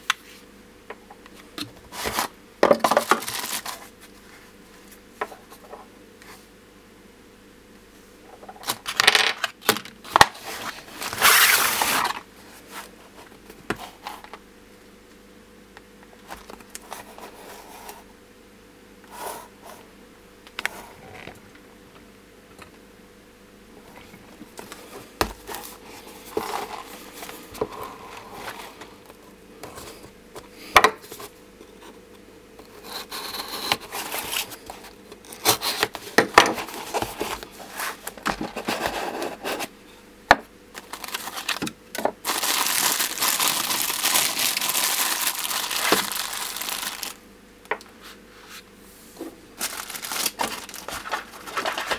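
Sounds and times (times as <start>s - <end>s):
cardboard boxes handled: 33.6s - 39.7s.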